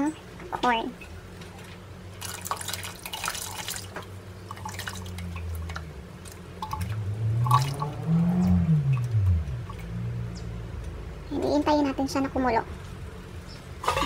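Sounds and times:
low wavering hum: 0:00.0 - 0:14.0
liquid pouring and splashing: 0:02.2 - 0:08.1, 0:13.8 - 0:14.0.

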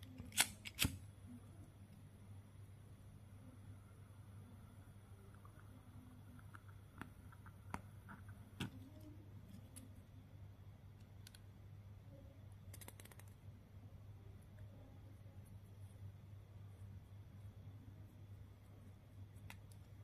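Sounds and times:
steady low hum: 0:00.0 - 0:20.0
faint clicks and taps: 0:05.3 - 0:09.9.

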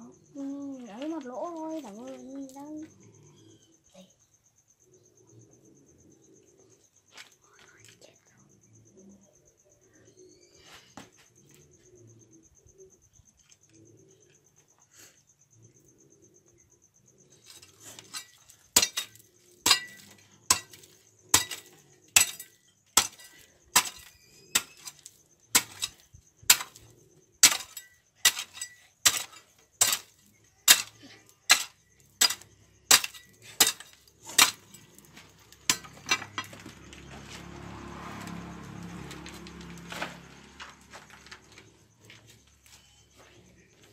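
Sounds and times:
metal hoe chopping stony dirt: 0:17.4 - 0:37.2.

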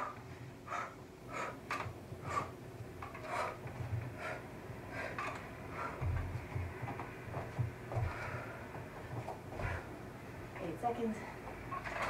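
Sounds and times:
woman breathing hard: 0:00.0 - 0:06.3, 0:07.9 - 0:10.1.

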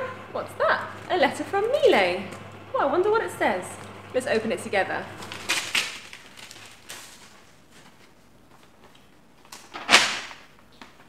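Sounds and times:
paper rustling and crackling: 0:05.1 - 0:11.0.

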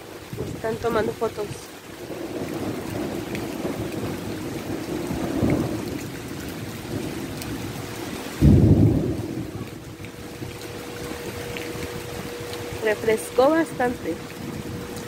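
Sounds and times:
steady rain: 0:00.0 - 0:15.0
low thunder rumbling: 0:00.2 - 0:15.0
loud thunder crack: 0:02.1 - 0:06.1, 0:08.4 - 0:09.7.

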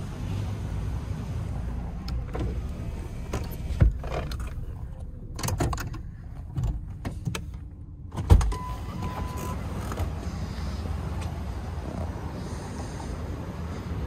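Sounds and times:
clicks and knocks inside car: 0:02.0 - 0:08.6
car engine idling: 0:09.3 - 0:14.0.

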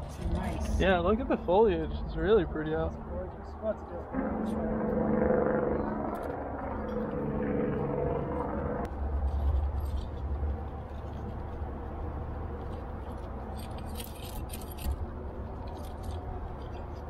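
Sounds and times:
steady low rumble: 0:00.0 - 0:14.1
metal climbing gear clinking: 0:09.2 - 0:11.3, 0:12.6 - 0:17.0.

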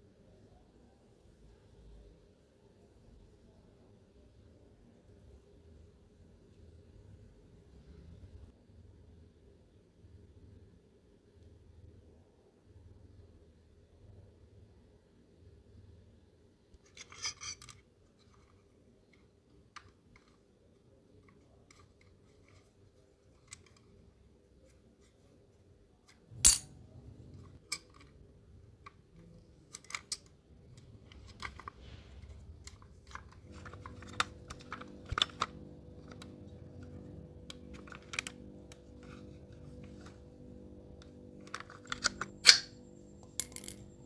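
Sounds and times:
faint steady hum: 0:00.0 - 0:44.0
small tools clicking and tapping: 0:32.6 - 0:40.2, 0:41.0 - 0:44.0.

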